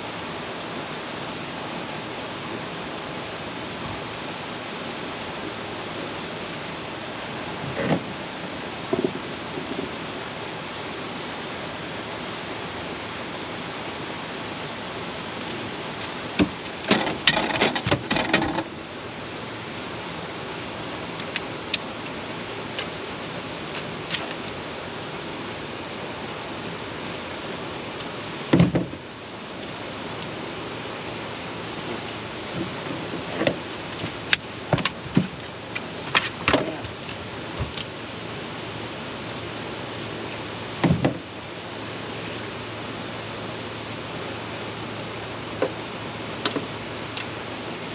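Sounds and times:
river water rushing: 0:00.0 - 0:47.9
gear clattering in a boat: 0:15.4 - 0:18.7, 0:28.0 - 0:29.0, 0:31.8 - 0:38.0, 0:40.8 - 0:41.3.

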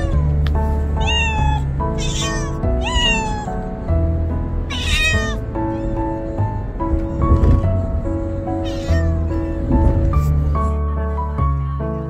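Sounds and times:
cat meowing: 0:00.0 - 0:00.3, 0:01.0 - 0:03.7, 0:04.6 - 0:07.4, 0:08.6 - 0:09.6
music playing: 0:00.0 - 0:12.0.

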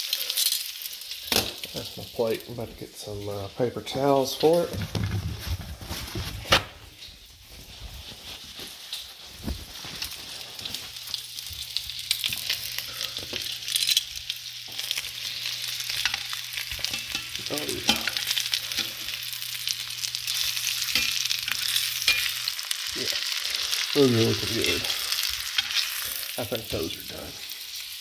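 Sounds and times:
sausages sizzling in a pan: 0:00.0 - 0:04.7, 0:06.9 - 0:28.0
metal tongs scraping a pan: 0:14.7 - 0:26.4.

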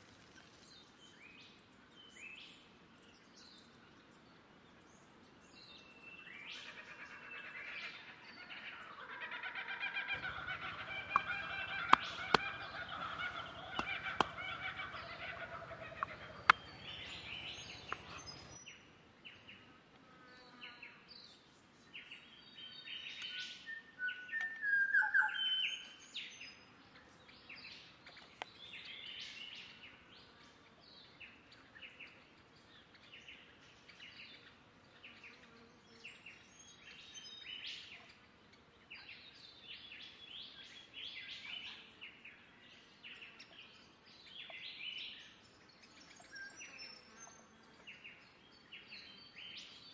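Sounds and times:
birds chirping: 0:10.1 - 0:18.6.

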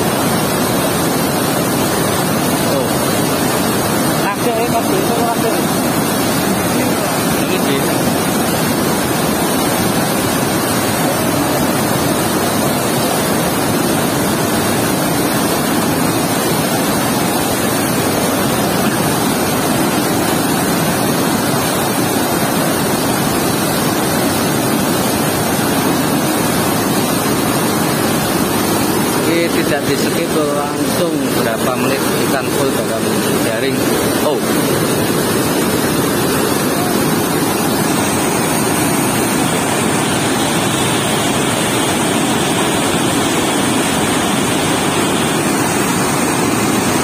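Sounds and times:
water rushing through sluice gate: 0:00.0 - 0:47.0.

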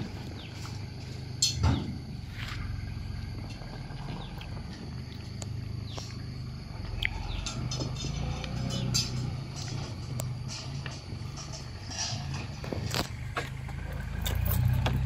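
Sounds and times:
tractor engine idling: 0:00.0 - 0:15.0
fruit bunches thudding into metal trailer: 0:01.4 - 0:02.1.

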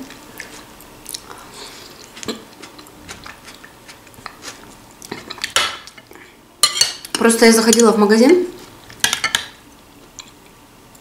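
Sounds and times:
person chewing salad: 0:00.1 - 0:06.2.

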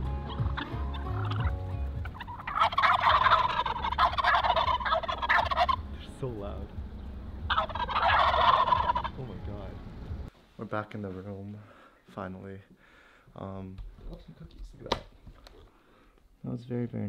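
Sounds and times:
turkeys gobbling: 0:00.2 - 0:06.1, 0:06.8 - 0:09.4.

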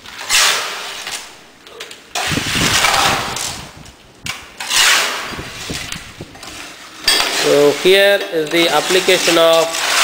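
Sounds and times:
concrete scraping into metal cone: 0:04.6 - 0:10.0.

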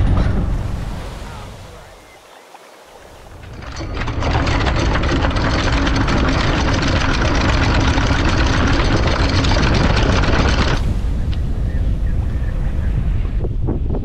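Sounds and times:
anchor chain rattling: 0:03.3 - 0:10.8.

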